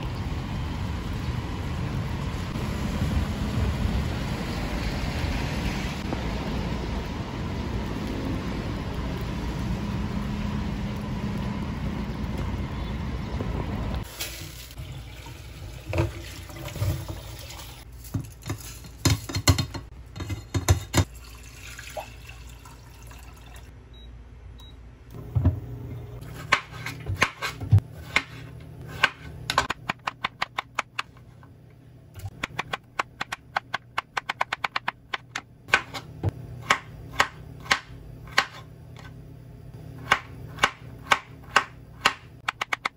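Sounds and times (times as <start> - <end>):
water poured into a pot: 14.0 - 17.9, 21.0 - 23.7
cookware knocking and clinking: 18.4 - 21.1
faint hum: 21.9 - 42.6
knife chopping on cutting board: 26.3 - 30.8.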